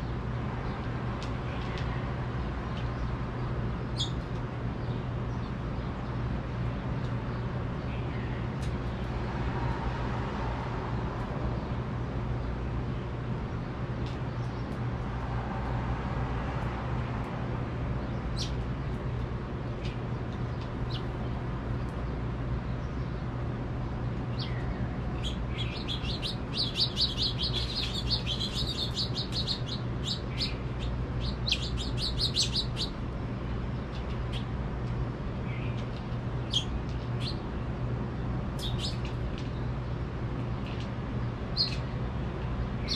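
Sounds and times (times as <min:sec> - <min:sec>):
distant city traffic rumble: 0:00.0 - 0:42.9
finches chirping and twittering: 0:03.7 - 0:05.9, 0:18.1 - 0:18.6, 0:20.8 - 0:21.4, 0:24.3 - 0:33.0, 0:33.8 - 0:34.5, 0:35.5 - 0:37.4, 0:38.6 - 0:39.6, 0:41.5 - 0:42.0.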